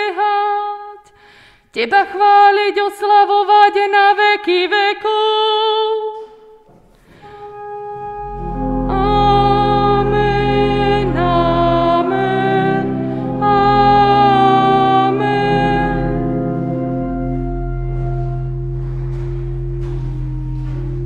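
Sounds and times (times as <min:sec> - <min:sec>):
church organ chords: 0:07.2 - 0:21.0
voices singing: 0:08.9 - 0:16.9.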